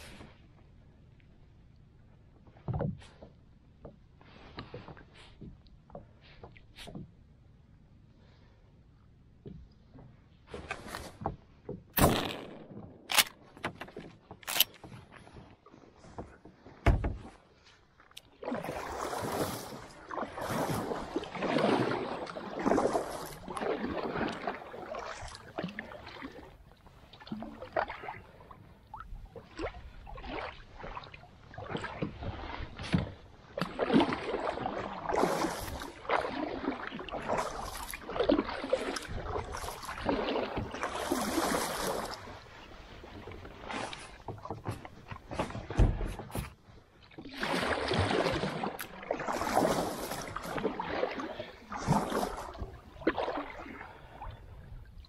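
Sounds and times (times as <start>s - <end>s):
dull thump: 16.2s - 17.4s
kayak paddle splashing: 18.2s - 55.0s.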